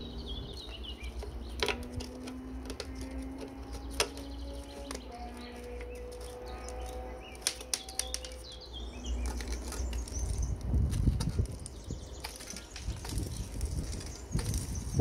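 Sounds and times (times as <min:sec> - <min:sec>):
handling noise: 0:00.0 - 0:15.0.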